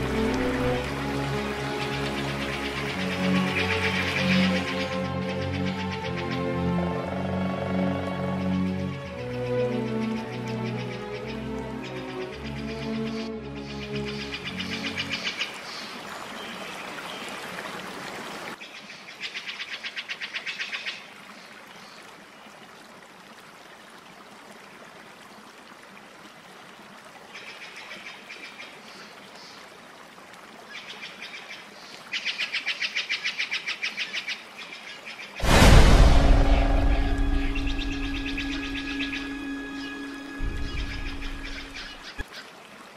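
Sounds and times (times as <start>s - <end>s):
pulsed chirping trills: 35.6s - 42.2s.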